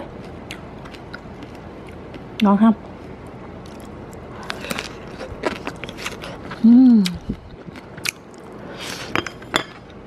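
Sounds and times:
crunchy eating: 0.0s - 10.0s
person humming mmm: 6.5s - 7.4s.

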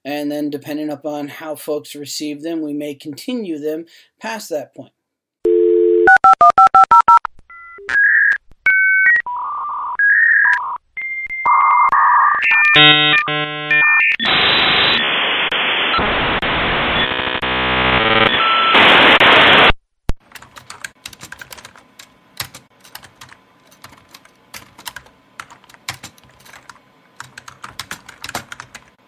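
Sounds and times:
dial-up modem hiss and warble: 11.5s - 19.7s
keyboard typing: 20.2s - 29.0s.

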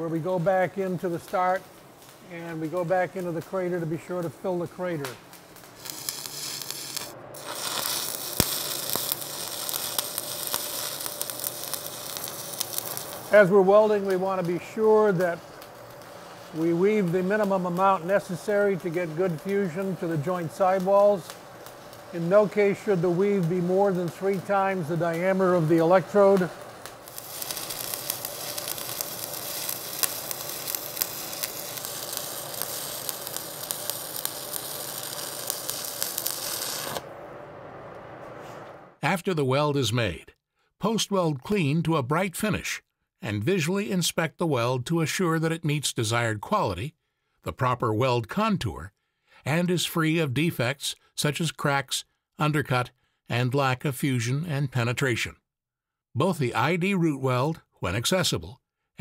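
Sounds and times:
welding arc hissing and crackling: 0.0s - 37.1s
welding arc pop: 4.2s - 37.1s.

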